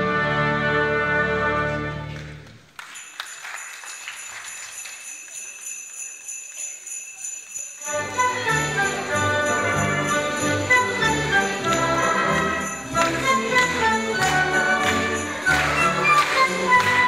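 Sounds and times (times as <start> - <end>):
orchestra playing: 0.0 - 2.7, 7.8 - 17.0
jingling bells: 2.8 - 17.0
tinkling struck notes: 2.8 - 17.0.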